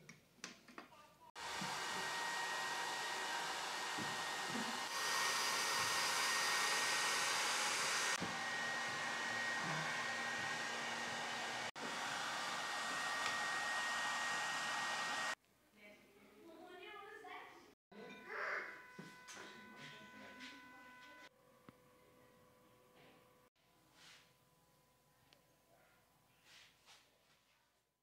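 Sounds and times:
hot-air gun blowing: 1.4s - 15.4s.

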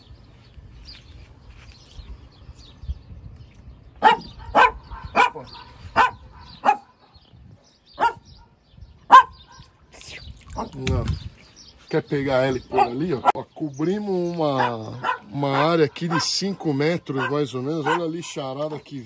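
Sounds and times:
small dog barking: 4.0s - 6.9s, 8.0s - 8.2s, 9.1s - 9.4s, 14.6s - 16.3s, 17.2s - 18.1s.

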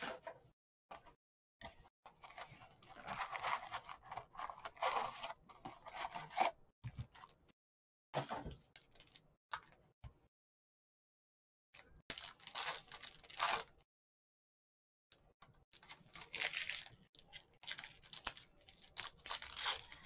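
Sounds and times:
foil wrapper crinkling and tearing: 12.1s - 13.8s, 15.8s - 20.0s.

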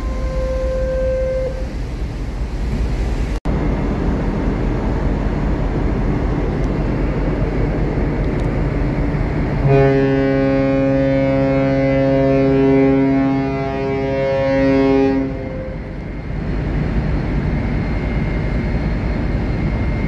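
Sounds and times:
ship's horn long blast: 0.0s - 2.0s, 9.5s - 16.1s
machinery rumble: 0.0s - 20.0s
wind: 0.0s - 20.0s.

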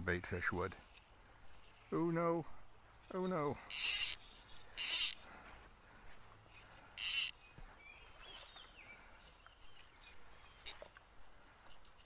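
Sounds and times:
fly line zipping through rod guides: 3.7s - 5.2s, 7.0s - 7.3s, 9.8s - 11.0s.

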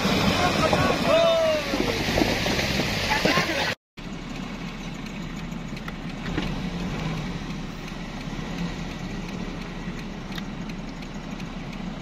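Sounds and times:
off-road vehicle engines idling: 0.0s - 12.0s
faint ticks: 4.3s - 12.0s.

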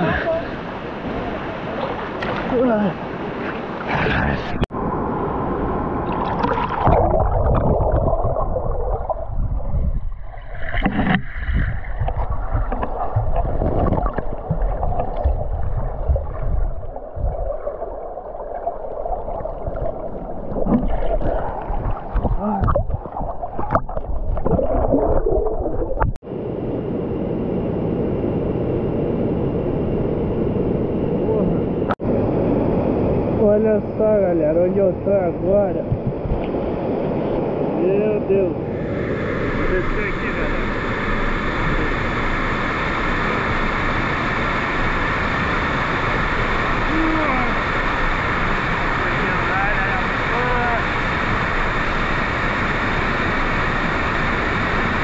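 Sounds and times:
muffled underwater gurgling and sloshing: 6.0s - 26.2s, 33.3s - 55.0s.

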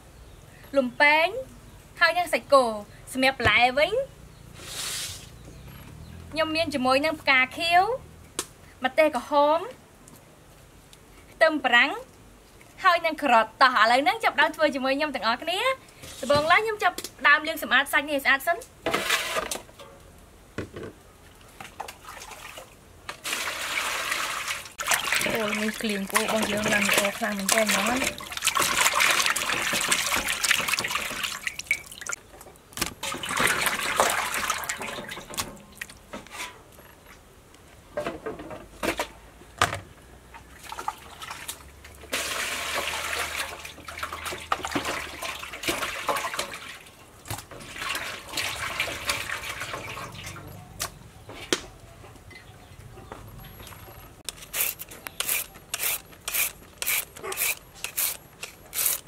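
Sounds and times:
hands sloshing in water: 21.6s - 32.2s
water being poured: 21.8s - 32.2s, 33.0s - 35.9s, 40.6s - 46.9s, 47.5s - 50.4s
peeler scraping carrot: 54.3s - 59.0s.

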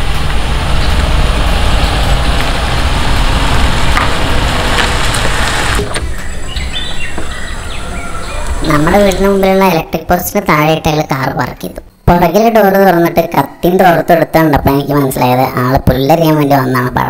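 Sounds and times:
small car driving: 0.0s - 10.0s.

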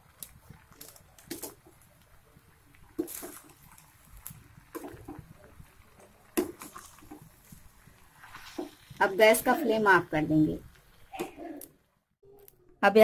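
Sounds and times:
pasta squelching: 0.0s - 11.8s
utensil scraping frying pan: 6.2s - 9.8s.

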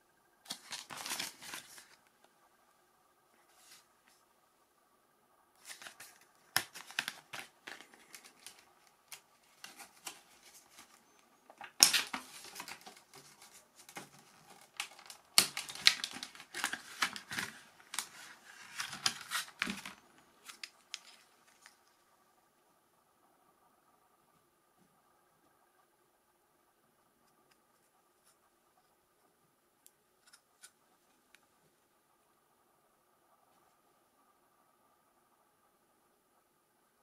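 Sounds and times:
plastic blister pack crackling: 0.5s - 2.0s, 5.6s - 21.8s.

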